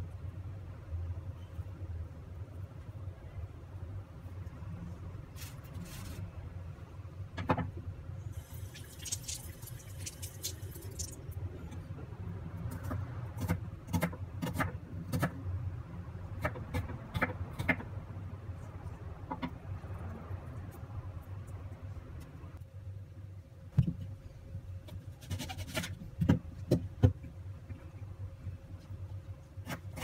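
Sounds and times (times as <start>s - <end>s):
papery crackle: 5.3s - 6.3s.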